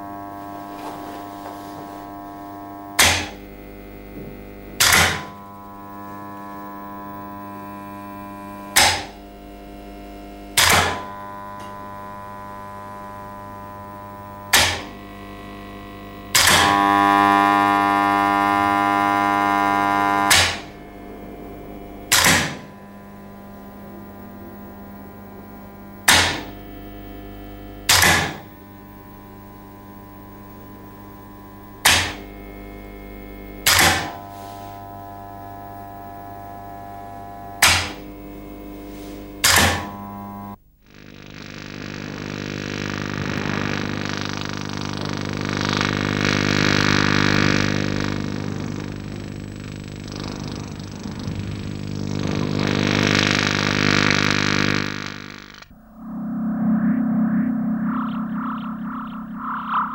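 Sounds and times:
electronic humming drone: 0.0s - 59.9s
bright synth chord: 55.7s - 59.9s
sharp struck hits: 55.7s - 59.9s.

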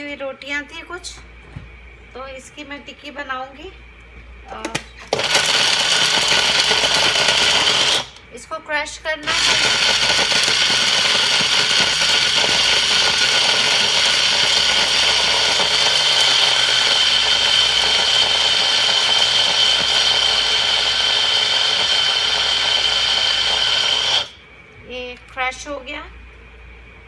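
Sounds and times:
blender motor whine: 5.1s - 8.2s, 9.2s - 24.4s.

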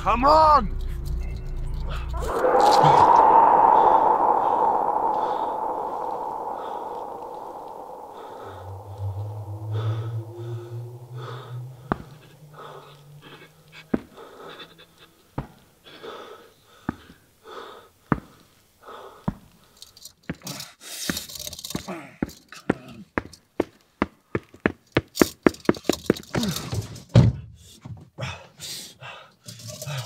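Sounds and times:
low hum: 0.7s - 15.1s.

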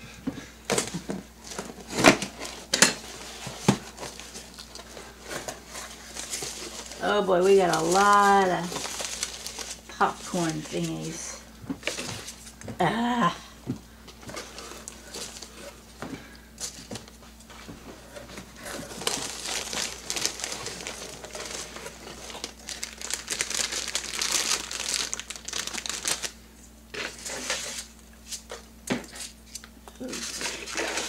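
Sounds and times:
hands rummaging through packing peanuts: 0.7s - 12.4s, 14.2s - 15.8s, 17.9s - 27.9s, 30.0s - 31.0s
plastic bag crinkling: 0.9s - 12.5s, 18.1s - 26.4s.

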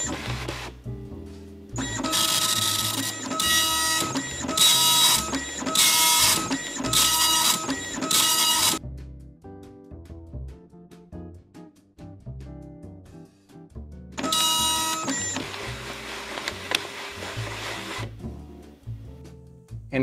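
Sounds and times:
dot matrix printer printing: 0.0s - 0.7s, 1.8s - 8.8s, 14.2s - 18.1s.

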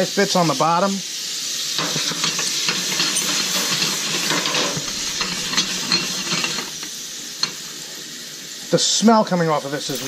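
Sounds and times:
mushrooms sizzling in a pan: 0.0s - 10.0s
pan crackling when moved: 1.8s - 7.7s.

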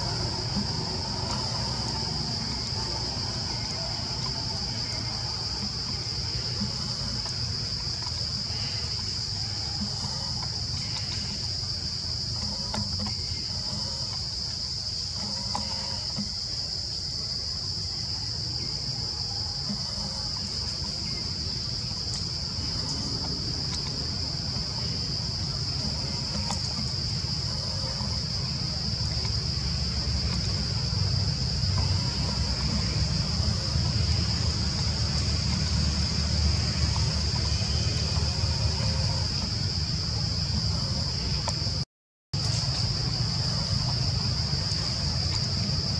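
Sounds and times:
faint animal calls: 0.0s - 16.8s
high-pitched insect drone: 0.0s - 41.8s.

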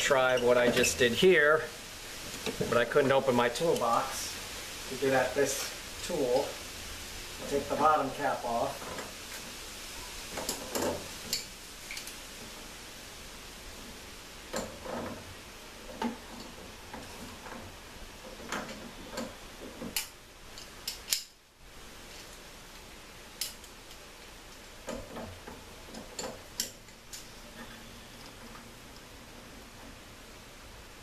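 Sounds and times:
pliers clicking on metal: 19.9s - 21.4s, 23.4s - 24.6s.

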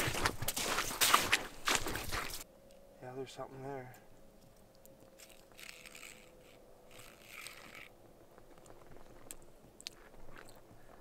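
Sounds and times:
small ticks: 4.4s - 7.9s
hands rustling fishing line: 4.5s - 9.5s.

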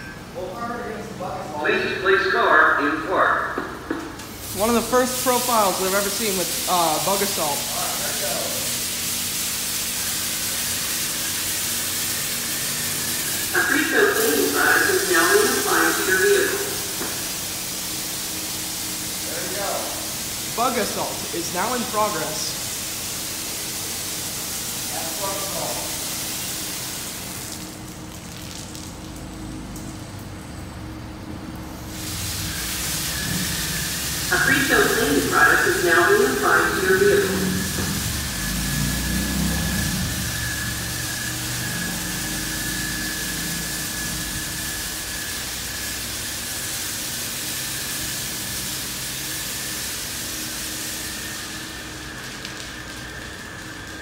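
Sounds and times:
car wash equipment rumble: 0.0s - 54.0s
spray hissing on a car: 4.2s - 30.6s, 31.4s - 54.0s
high-pitched whine: 10.0s - 18.0s, 29.4s - 54.0s.

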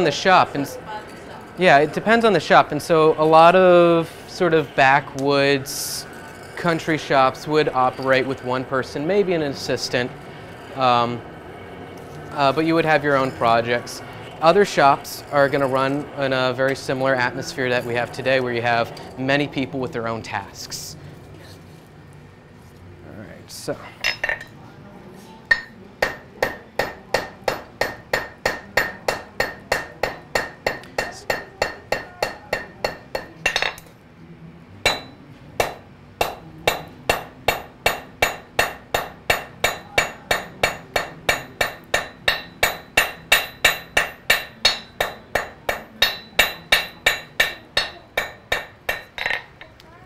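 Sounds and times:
hammer striking hot iron on anvil: 12.8s - 17.0s, 25.5s - 33.9s, 34.8s - 49.6s.

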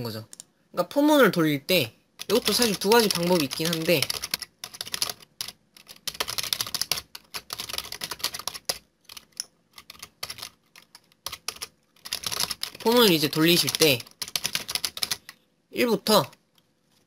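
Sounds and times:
computer keyboard typing: 2.2s - 15.4s.

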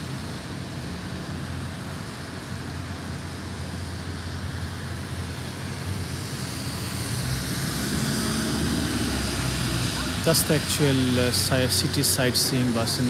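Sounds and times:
traffic engine rumble: 0.0s - 13.0s
tyre noise on wet road: 5.3s - 13.0s.

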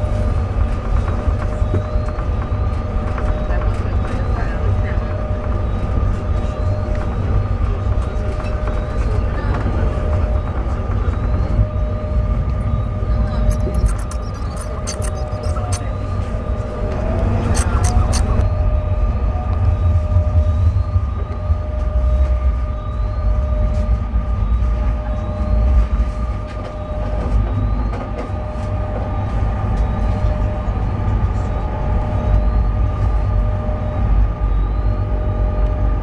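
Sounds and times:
tram rumbling on track: 0.0s - 13.5s, 23.3s - 36.0s
high whine: 13.2s - 16.0s
faint clicks: 13.5s - 15.8s.

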